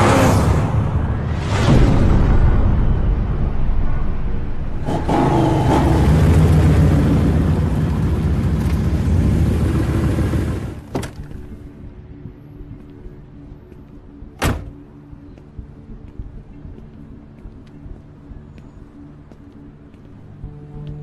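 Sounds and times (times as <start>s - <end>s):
low hum: 0.0s - 21.0s
car engines rumbling: 4.6s - 11.8s
music: 10.1s - 21.0s.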